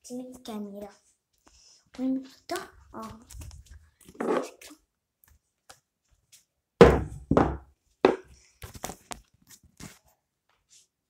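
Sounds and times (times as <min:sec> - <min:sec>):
phone handling knocks and thuds: 0:06.8 - 0:08.2.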